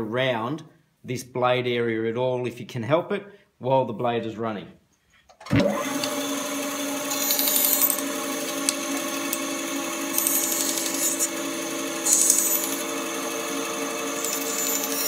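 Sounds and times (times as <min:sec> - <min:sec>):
bandsaw blade cutting wood: 0:05.6 - 0:15.0
bandsaw humming: 0:05.6 - 0:15.0.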